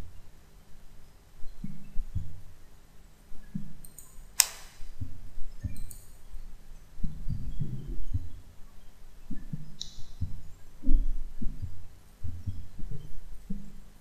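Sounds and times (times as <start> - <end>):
sharp click: 3.8 - 4.9
low thumps and rumbles: 9.3 - 13.8.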